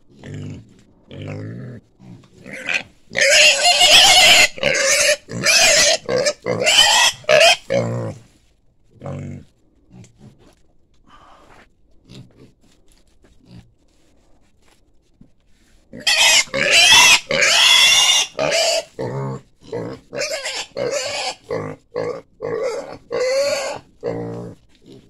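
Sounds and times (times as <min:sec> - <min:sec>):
piglet squealing shrilly: 0:02.6 - 0:07.6, 0:16.0 - 0:18.9, 0:20.2 - 0:21.4, 0:22.6 - 0:23.8
piglet grunting: 0:16.0 - 0:25.0.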